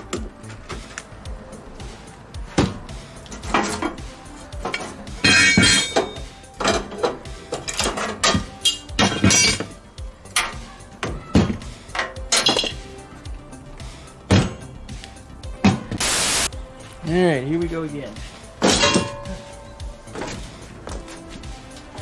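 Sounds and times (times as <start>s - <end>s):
metal tools clinking: 3.3s - 9.7s.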